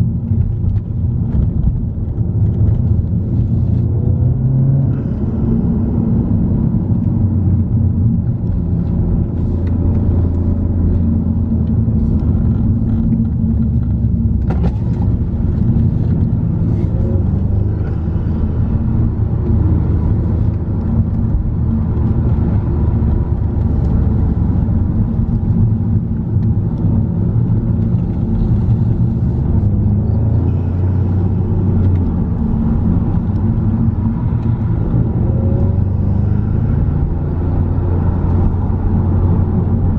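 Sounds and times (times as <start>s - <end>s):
car engine drone inside cabin: 0.0s - 39.9s.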